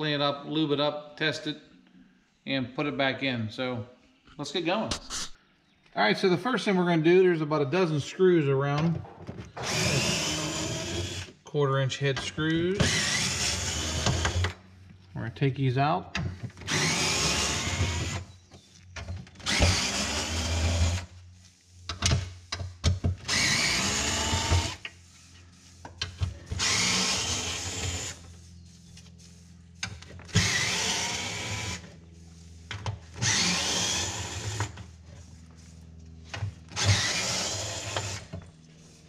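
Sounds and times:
cordless drill whining: 9.5 - 11.4, 12.8 - 14.6, 16.4 - 21.2, 23.1 - 25.0, 26.0 - 28.7, 29.8 - 35.0, 36.3 - 38.5.

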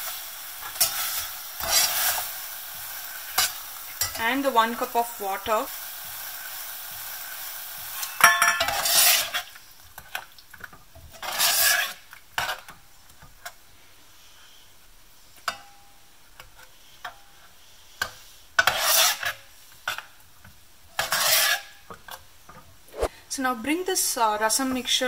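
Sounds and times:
sizzling hiss: 0.0 - 12.3, 12.9 - 25.0
spoon scraping metal pot: 8.2 - 9.5, 11.1 - 12.7, 18.6 - 20.1, 21.0 - 21.9.

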